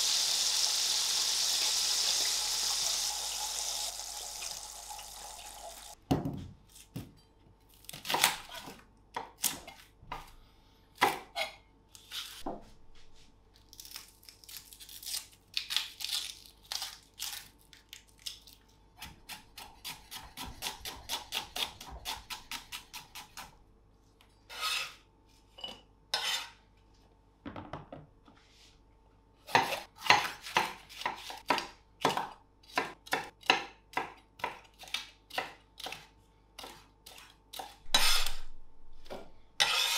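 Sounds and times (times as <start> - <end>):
knife chopping on wooden board: 29.5 - 38.3.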